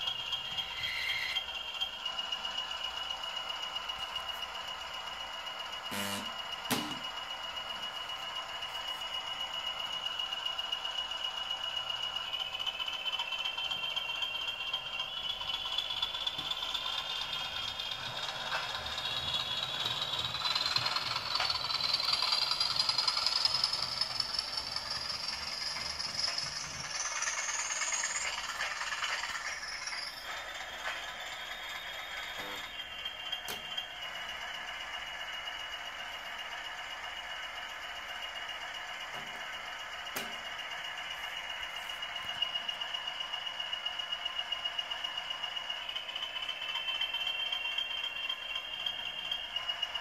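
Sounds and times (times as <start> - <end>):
model train motor whining: 0.0 - 50.0
wheels clicking over rail joints: 12.5 - 50.0.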